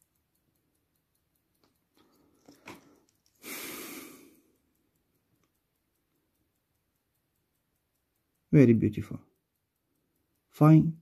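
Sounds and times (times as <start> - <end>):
pocket watch ticking: 0.0 - 11.0
breathy burst of noise: 3.4 - 4.4.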